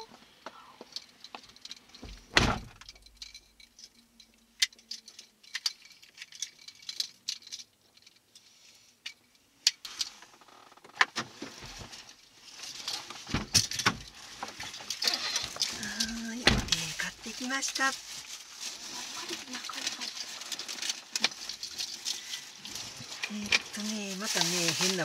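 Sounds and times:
clicks and rattles: 0.8 - 8.4, 12.6 - 25.0
rustling: 0.8 - 25.0.

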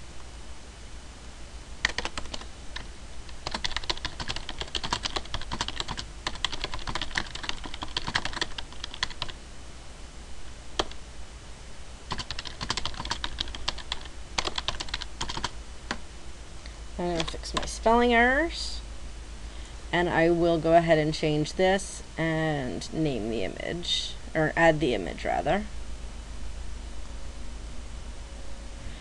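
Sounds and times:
typing on computer keyboard: 1.8 - 9.4, 10.8 - 11.0, 12.1 - 16.0, 17.2 - 17.7.

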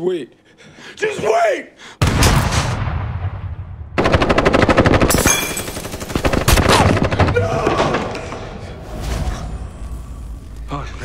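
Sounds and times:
automatic gunfire: 4.0 - 7.4.

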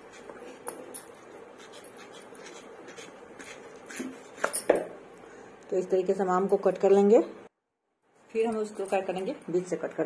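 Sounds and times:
blade scraping through mango: 0.0 - 4.5.

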